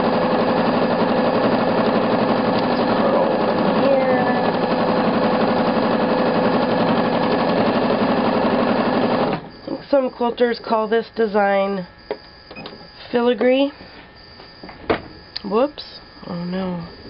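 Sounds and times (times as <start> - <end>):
sewing machine stitching: 0.0 - 9.5.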